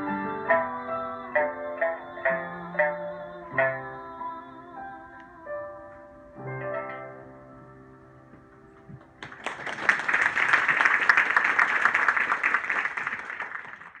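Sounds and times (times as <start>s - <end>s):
piano and sanshin chord: 0.0s - 9.0s
audience applause: 9.1s - 14.0s.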